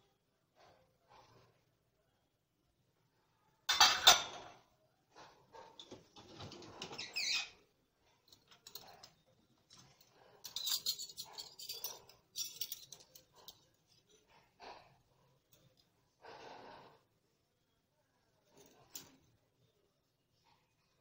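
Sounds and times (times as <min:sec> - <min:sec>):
metal cutlery clattering in dishwasher: 0:03.7 - 0:04.6, 0:09.8 - 0:13.7.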